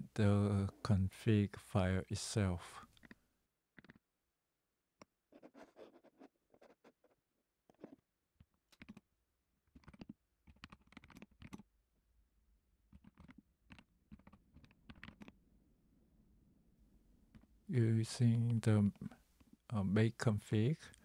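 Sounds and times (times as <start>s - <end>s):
typing on keyboard: 9.8s - 11.6s, 12.9s - 15.3s.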